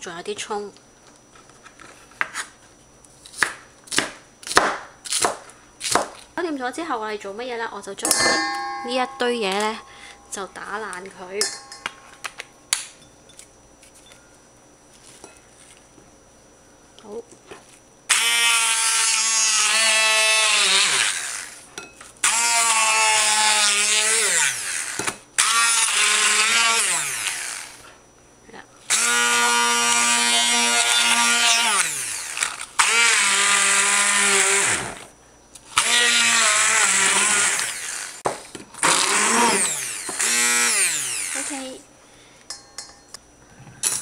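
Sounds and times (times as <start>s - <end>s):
immersion blender motor whine: 18.1s - 27.9s, 28.9s - 35.1s, 35.7s - 41.8s.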